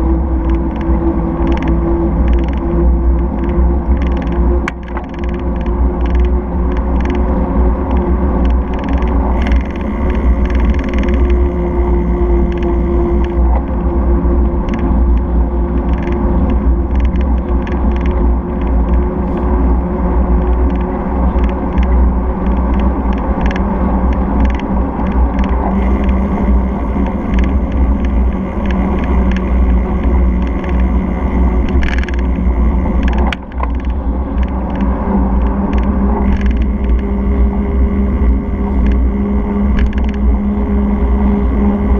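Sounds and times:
tyres rumbling on asphalt: 0.0 - 41.9
wind noise: 0.0 - 41.9
camera mount rattling: 25.4 - 34.8.

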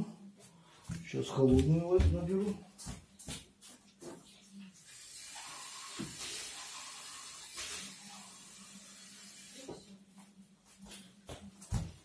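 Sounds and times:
tap water running into cup: 4.8 - 9.9.

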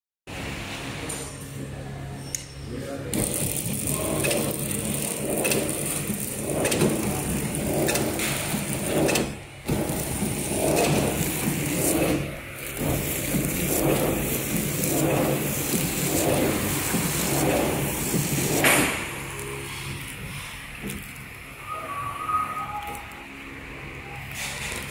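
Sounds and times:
packaging machine humming: 3.0 - 24.9
machine clicks: 3.1 - 19.5.

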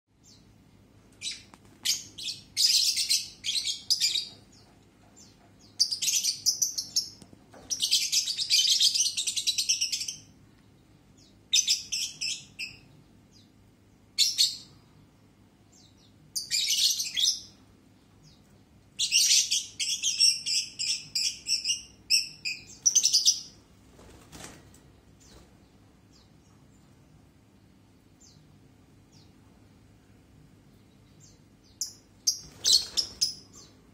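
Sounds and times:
lovebirds chattering shrilly: 31.8 - 33.7.

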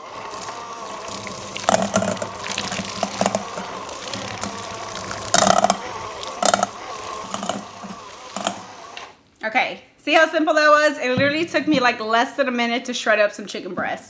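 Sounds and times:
hand mixer motor hum: 0.0 - 9.1
beaters clattering against bowl: 0.2 - 8.8.

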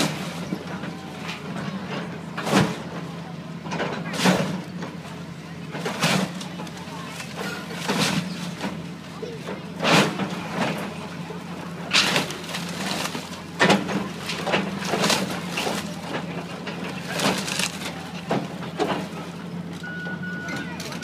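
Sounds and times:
excavator engine running: 0.0 - 21.0
debris falling: 11.8 - 19.1
timber cracking and splintering: 11.9 - 18.5.

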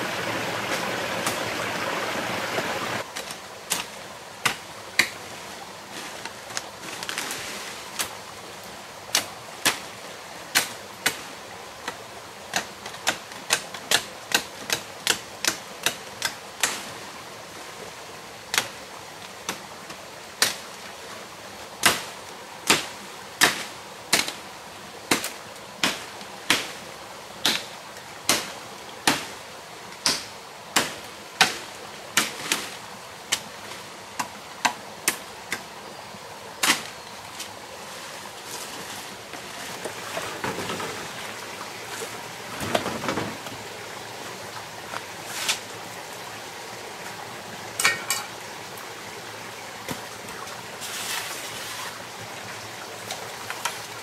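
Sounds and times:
steady background hiss: 0.0 - 54.0
machete chopping branch: 21.8 - 24.4, 25.1 - 26.7, 28.3 - 29.3, 30.0 - 32.7.

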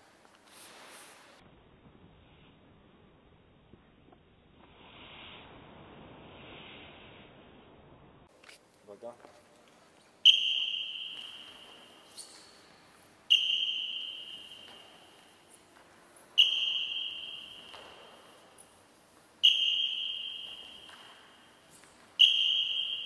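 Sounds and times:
short high whistle blasts: 10.2 - 12.7, 13.3 - 15.4, 16.4 - 18.5, 19.4 - 21.6, 22.2 - 23.0.

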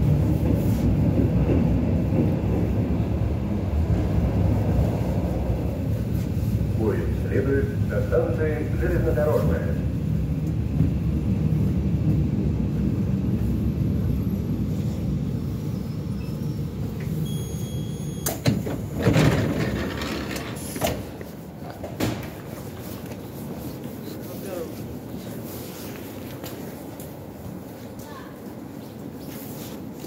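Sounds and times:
train rumbling: 0.0 - 30.0
sliding doors opening: 16.9 - 22.8
short high beep: 17.2 - 18.3.

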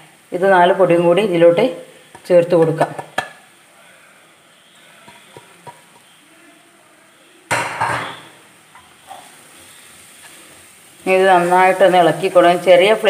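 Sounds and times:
scraping and sizzling in pan: 0.0 - 13.0
spatula tapping pan: 2.1 - 3.4, 5.0 - 6.1.

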